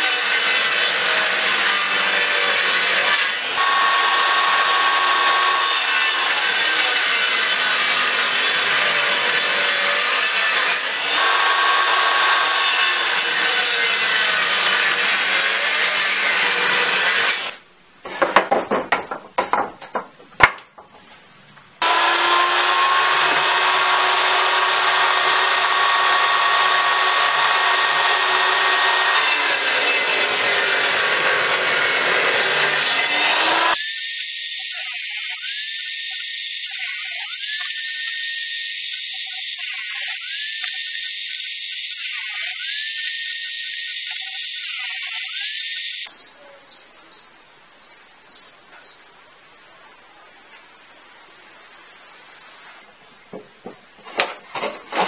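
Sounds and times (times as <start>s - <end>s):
power saw cutting wood: 0.0s - 17.6s, 21.8s - 46.1s
knocks: 18.1s - 21.0s.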